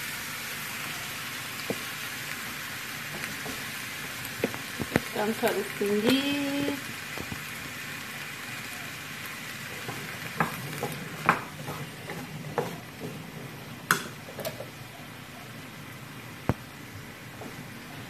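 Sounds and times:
vegetables sizzling in a pot: 0.0s - 18.0s
wooden spatula scraping a pot: 9.6s - 14.6s.

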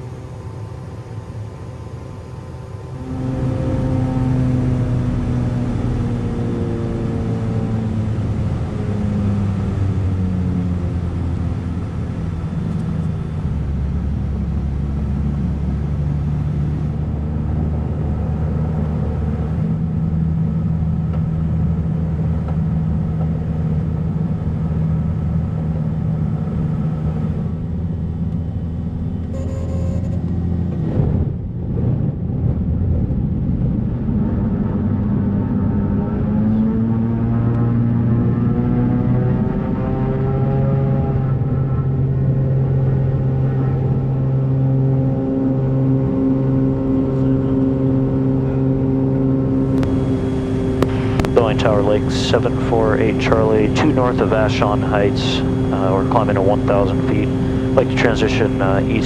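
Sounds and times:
propeller engine droning: 0.0s - 59.0s.

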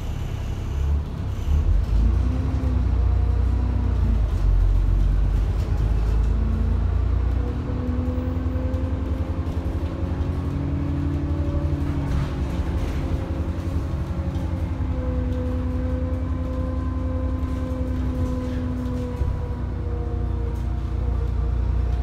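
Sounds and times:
bus engine rumble: 0.0s - 22.0s.

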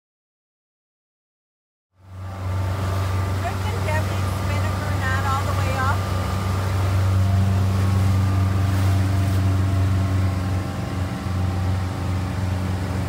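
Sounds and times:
motorboat engine humming: 2.0s - 13.0s.

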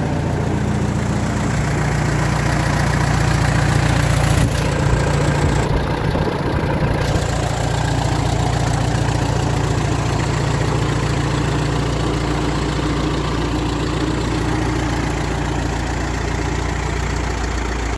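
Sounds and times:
tractor engine idling: 0.0s - 17.9s.

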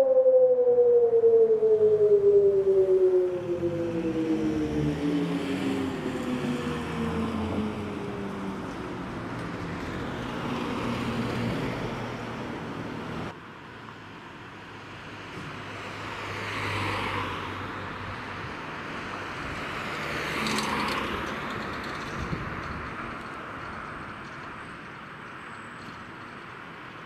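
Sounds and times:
siren wailing: 0.0s - 8.8s
outdoor noise: 0.0s - 27.0s.

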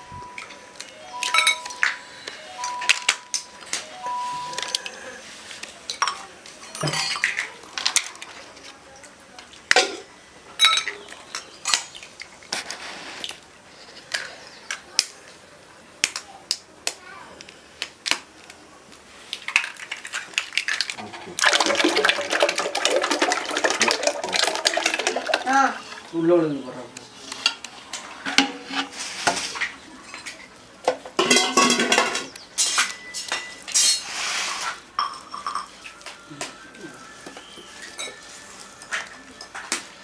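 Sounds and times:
utensils clinking against metal pots: 0.3s - 5.0s, 5.9s - 8.1s, 10.6s - 11.9s, 20.9s - 25.6s, 28.2s - 36.0s, 37.8s - 39.8s
liquid pouring and splashing into pot: 19.6s - 26.1s.

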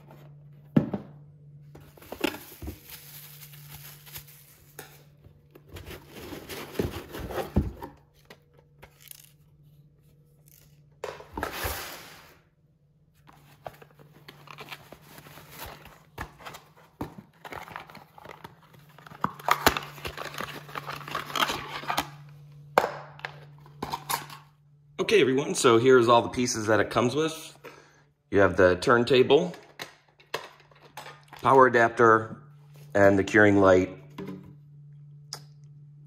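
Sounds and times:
cardboard packaging rustling: 1.8s - 9.7s, 13.2s - 22.1s
plastic wrap crinkling: 2.0s - 5.0s.

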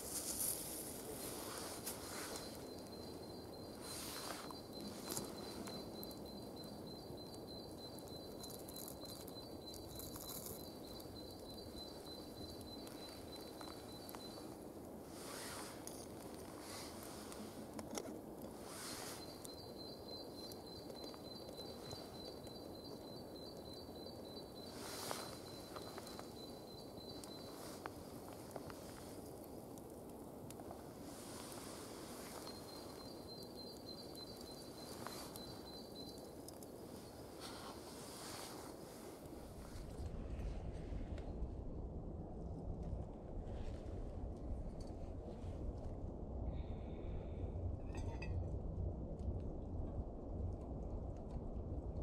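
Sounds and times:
dry leaves crumbled crackles: 0.0s - 5.9s, 8.2s - 19.3s
faint outdoor ambience: 0.0s - 52.0s
insect trill: 0.1s - 14.8s, 18.6s - 29.0s, 31.1s - 38.6s
thin high steady tone: 0.1s - 15.8s
fire torch burning rush: 36.1s - 46.5s.

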